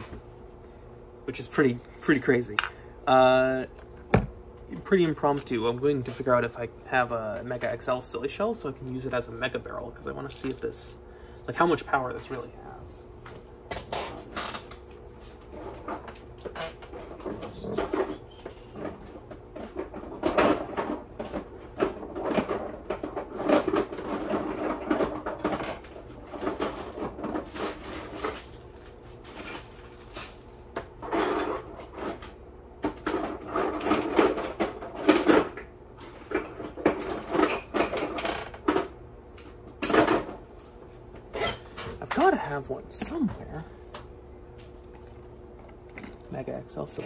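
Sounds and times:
hard plastic objects clattering: 0:15.6 - 0:38.9.

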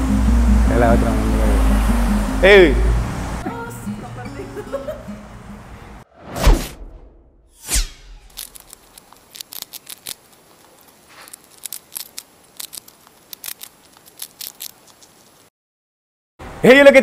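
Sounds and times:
quick whoosh: 0:06.1 - 0:08.3
glitchy crackling clicks: 0:08.2 - 0:15.5.

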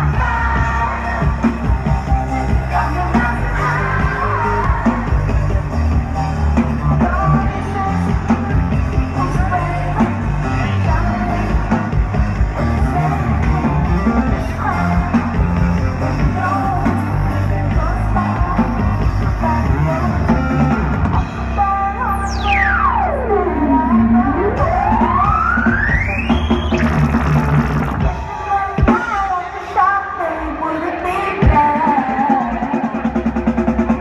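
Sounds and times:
person singing: 0:00.0 - 0:22.5, 0:28.0 - 0:34.0
live electronic music: 0:00.0 - 0:34.0
synth sweep falling in pitch: 0:21.9 - 0:28.0.

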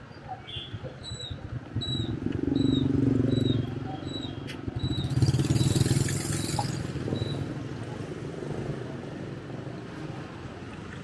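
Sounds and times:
scooter traffic: 0:00.0 - 0:11.0
scooter engine passing: 0:01.6 - 0:09.3.

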